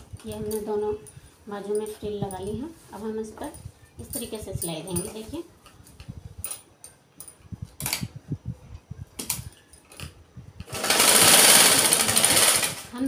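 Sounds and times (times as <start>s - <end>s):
sewing machine stitching: 10.7s - 13.0s.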